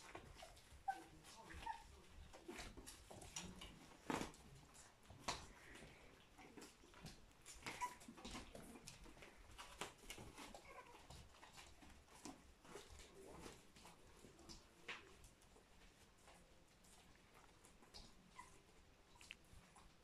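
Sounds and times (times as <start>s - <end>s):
puppies scuffling and pattering: 0.0s - 20.0s
puppy squeak: 7.6s - 8.1s.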